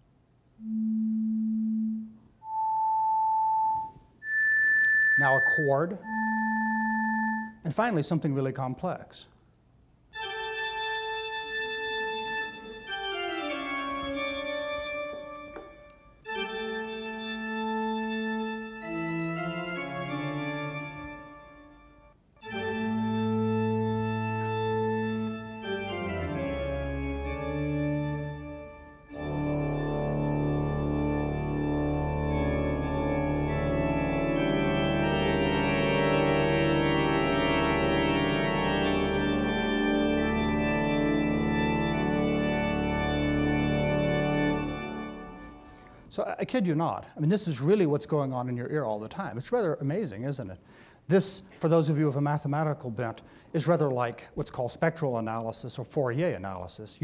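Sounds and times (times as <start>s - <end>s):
organ chords: 0.0s - 8.1s, 10.1s - 48.3s.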